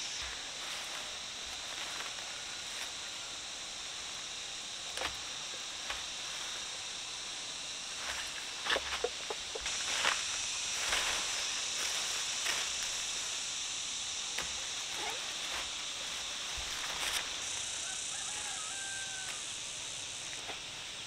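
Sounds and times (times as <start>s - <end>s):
steady high-pitched hiss: 0.0s - 21.0s
rooster crowing: 17.4s - 20.0s.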